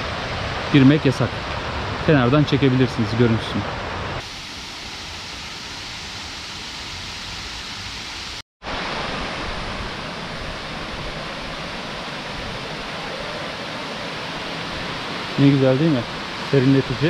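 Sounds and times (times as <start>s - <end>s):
waterfall rushing: 8.7s - 17.0s.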